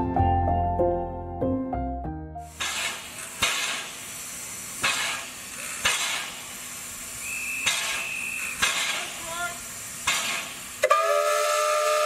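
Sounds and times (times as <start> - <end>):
hissing steam: 2.4 - 12.0
steam locomotive exhaust chuffs: 2.5 - 12.0
steam whistle blast: 7.2 - 9.0, 10.8 - 12.0.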